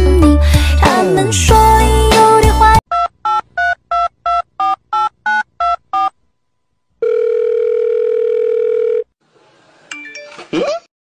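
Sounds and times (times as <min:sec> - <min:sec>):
telephone line tone: 0:07.0 - 0:09.2.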